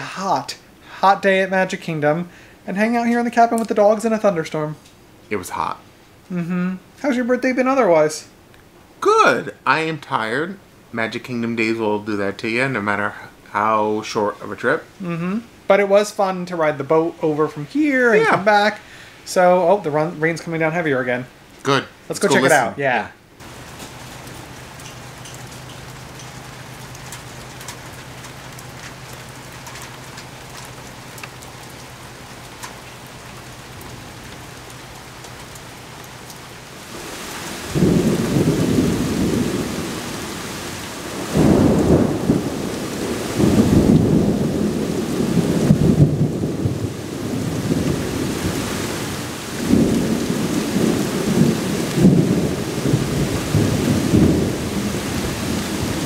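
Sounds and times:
heavy rain: 0:00.0 - 0:56.0
rolling thunder: 0:36.9 - 0:56.0.

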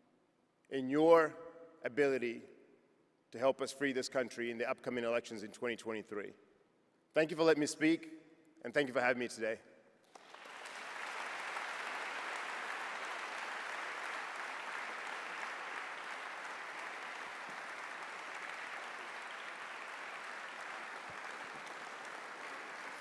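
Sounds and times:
audience applauding: 0:10.1 - 0:23.0.

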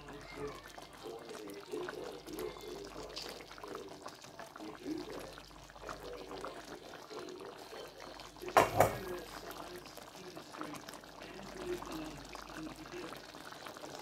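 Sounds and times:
sauce bubbling and popping: 0:00.0 - 0:14.0.

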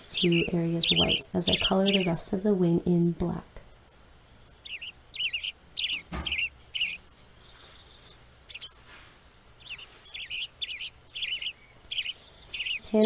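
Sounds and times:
birds chirping: 0:00.0 - 0:13.0
thump: 0:06.1 - 0:06.4.

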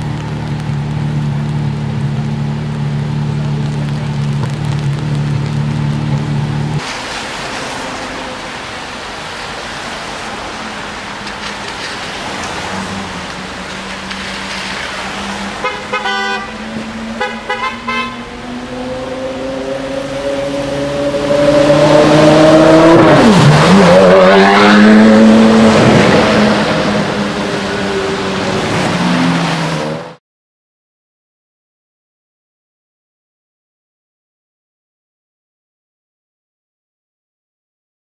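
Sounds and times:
low steady engine note: 0:00.0 - 0:06.8
car horn honking: 0:15.6 - 0:18.4
car engine accelerating hard: 0:16.5 - 0:30.2.

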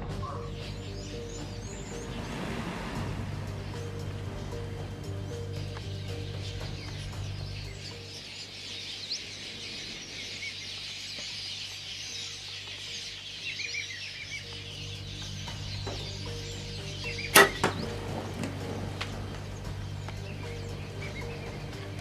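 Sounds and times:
steady low hum: 0:00.0 - 0:08.3
wild birds chirping and calling: 0:00.0 - 0:22.0.

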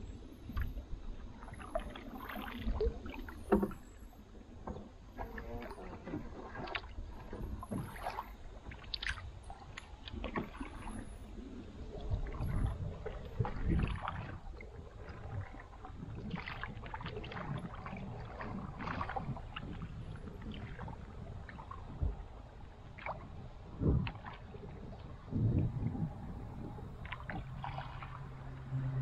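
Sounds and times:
water slapping hull: 0:00.0 - 0:29.0
paddle splashing in water: 0:00.4 - 0:29.0
low rumble: 0:16.8 - 0:29.0.

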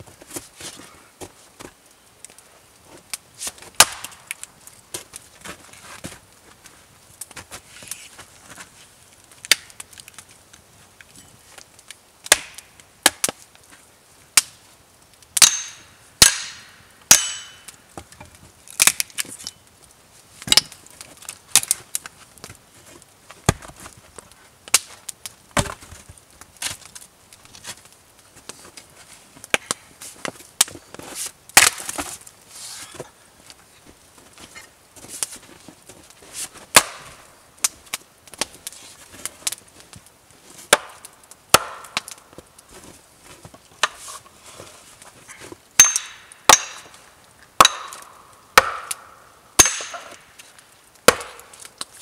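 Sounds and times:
axe chopping wood: 0:03.8 - 0:04.2, 0:12.3 - 0:13.4, 0:15.4 - 0:17.7, 0:25.6 - 0:25.9, 0:31.6 - 0:32.1, 0:36.7 - 0:37.1, 0:40.7 - 0:42.2, 0:45.8 - 0:47.0, 0:47.6 - 0:50.2, 0:51.0 - 0:51.6.

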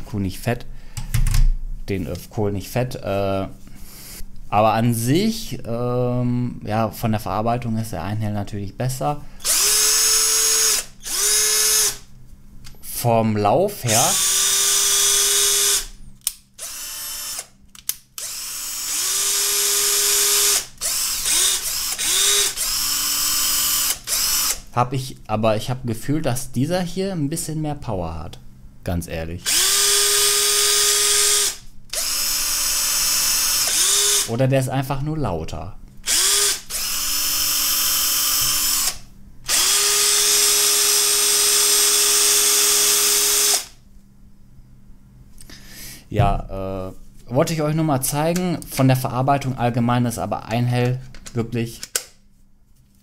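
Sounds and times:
cordless drill motor whining: 0:09.4 - 0:12.0, 0:13.9 - 0:15.9, 0:16.6 - 0:17.5, 0:18.2 - 0:24.6, 0:29.4 - 0:34.3, 0:36.0 - 0:43.8.

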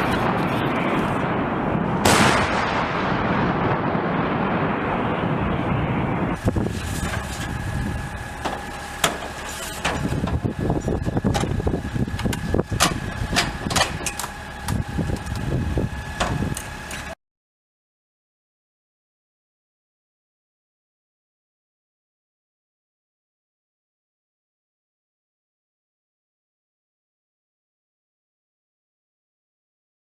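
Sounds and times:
artillery blast: 0:00.0 - 0:08.4
loud rumbling: 0:00.0 - 0:17.1
faint steady whine: 0:05.4 - 0:17.2
metal clanks and clicks: 0:12.2 - 0:14.3.

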